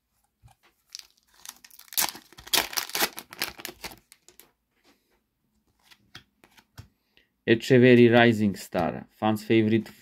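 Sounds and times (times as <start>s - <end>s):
wrapper tearing and crinkling: 0.9s - 4.4s.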